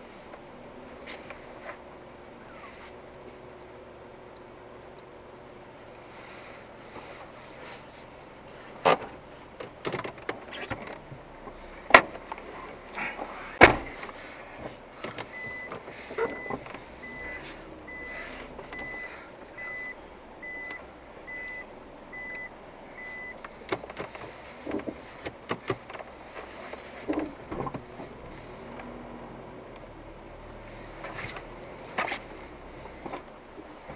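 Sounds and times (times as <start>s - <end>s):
car warning chime beeping: 15.2s - 23.4s.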